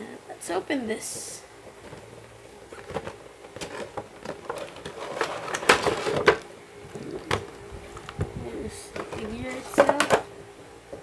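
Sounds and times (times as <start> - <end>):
plastic packaging crinkling: 1.7 - 8.3.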